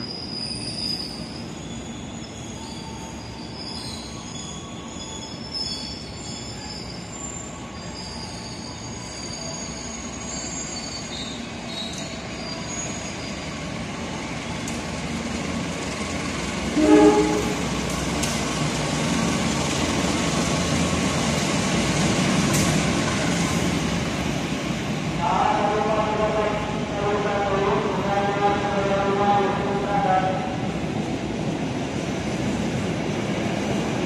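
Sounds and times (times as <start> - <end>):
train wheels squealing: 0.0 - 14.6
low train rumble: 0.0 - 34.0.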